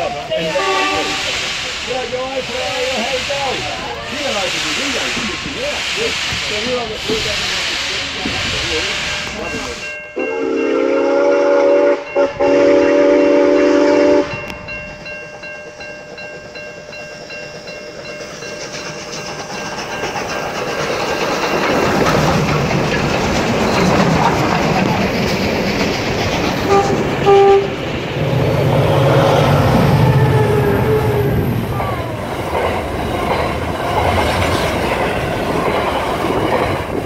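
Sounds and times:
train rumbling and clattering: 0:00.0 - 0:37.0
train horn: 0:00.4 - 0:01.4, 0:10.2 - 0:14.6, 0:26.7 - 0:27.8, 0:29.9 - 0:31.4.

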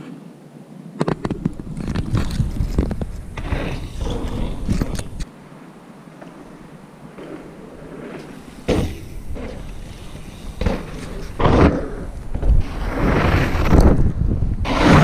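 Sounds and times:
bike tyres on gravel: 0:01.5 - 0:05.3, 0:06.0 - 0:15.0
bike knocks and rattles: 0:08.6 - 0:09.8, 0:10.5 - 0:12.5.

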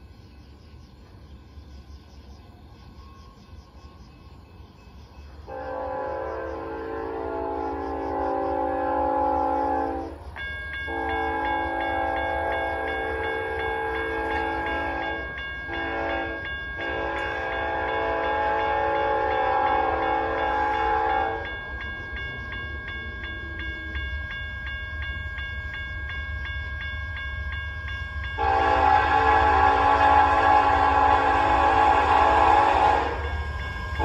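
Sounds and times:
train horn blasts: 0:05.5 - 0:10.3, 0:10.9 - 0:21.6, 0:28.4 - 0:34.0
grade crossing bell ringing: 0:09.6 - 0:34.0.

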